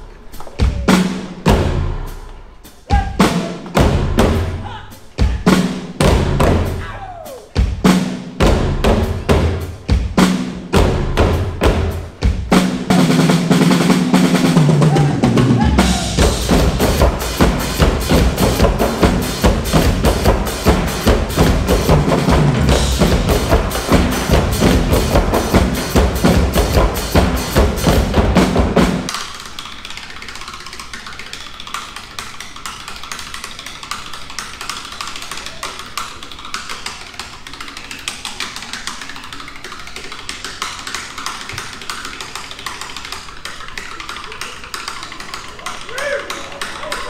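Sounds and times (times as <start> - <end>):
rhythmic drum music: 0.0 - 47.0
heavy bass drum: 0.3 - 29.1
fast percussive clicking: 9.1 - 47.0.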